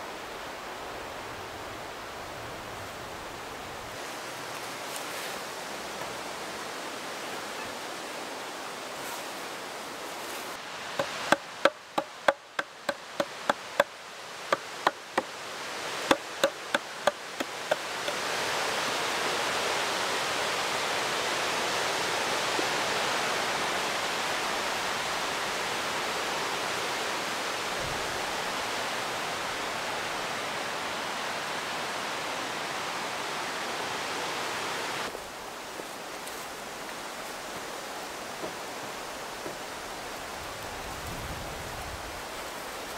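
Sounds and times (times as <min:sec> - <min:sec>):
steady even hiss: 0:00.0 - 0:42.9
tool knocking on wooden log: 0:11.0 - 0:13.9, 0:14.5 - 0:15.3, 0:16.1 - 0:18.2.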